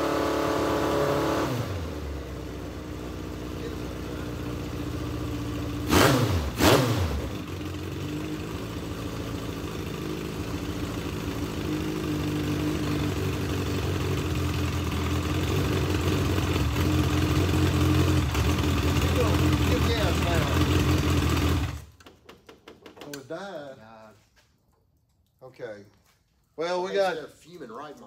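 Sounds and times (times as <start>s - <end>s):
race car engine revving and idling: 0.0s - 21.9s.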